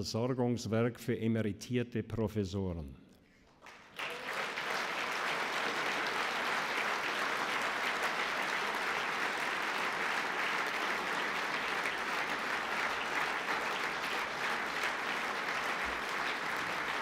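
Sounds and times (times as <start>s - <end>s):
audience applauding: 3.5s - 17.0s.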